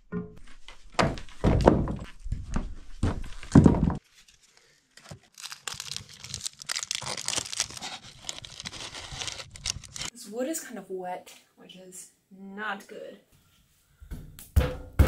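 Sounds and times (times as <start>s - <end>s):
paper crinkling and tearing: 3.3s - 10.1s.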